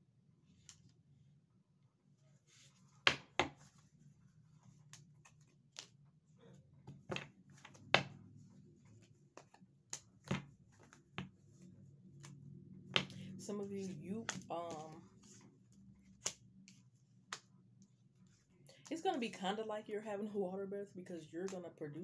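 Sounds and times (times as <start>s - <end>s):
low steady hum: 0.0s - 22.0s
cards snapping and tapping: 16.2s - 17.5s.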